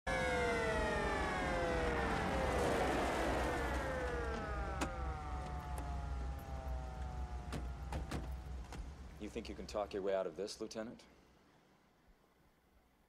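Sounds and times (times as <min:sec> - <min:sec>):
sirens winding down: 0:00.1 - 0:09.2.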